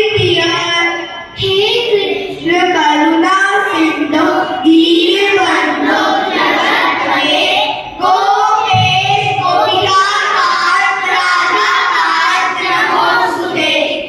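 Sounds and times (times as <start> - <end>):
children chanting into a microphone: 0.0 - 14.0.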